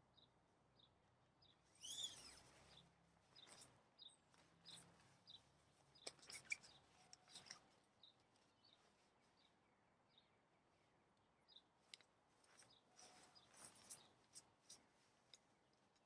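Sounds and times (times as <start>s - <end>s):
bird chirping: 0.1s - 14.9s
tent fabric rustling: 1.8s - 5.8s.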